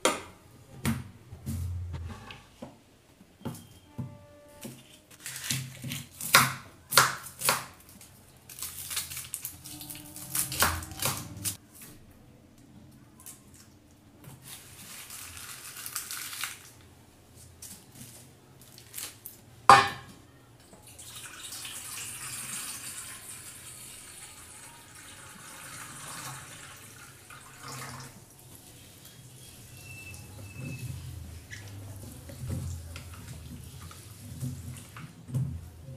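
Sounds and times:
onion skins crackling: 5.1 - 11.8, 14.4 - 19.4.

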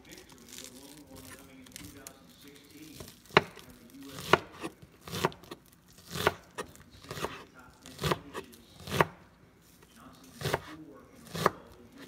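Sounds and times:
knife chopping on cutting board: 3.0 - 9.2, 10.3 - 12.0.

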